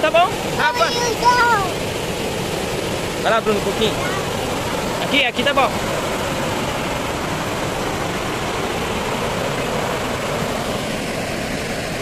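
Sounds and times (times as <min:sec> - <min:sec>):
water pouring over dam spillway: 0:00.0 - 0:12.0.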